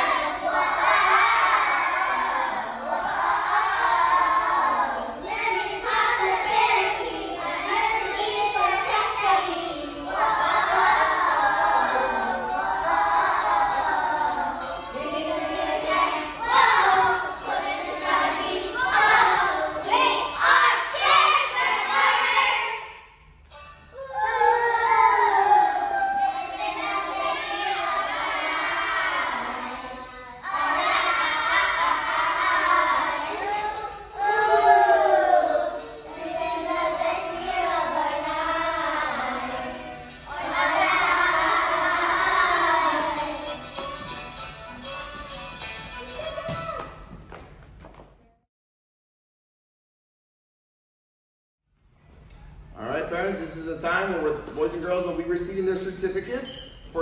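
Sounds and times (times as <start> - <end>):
young children singing: 0.0 - 44.4.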